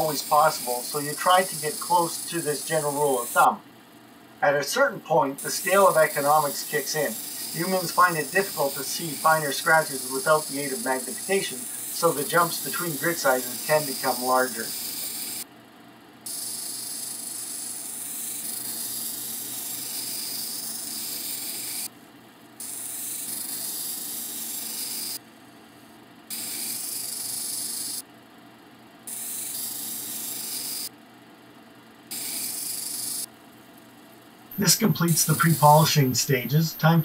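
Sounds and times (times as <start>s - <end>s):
stone hissing on grinding wheel: 0.0s - 3.6s, 5.4s - 15.4s, 16.3s - 21.9s, 22.6s - 25.2s, 26.3s - 28.0s, 29.1s - 30.9s, 32.1s - 33.3s.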